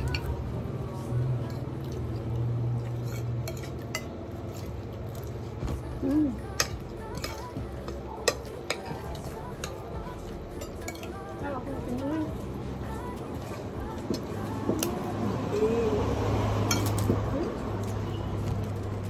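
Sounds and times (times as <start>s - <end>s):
metal spoons scraping plates: 2.8s - 5.3s, 6.5s - 11.3s, 16.7s - 17.2s.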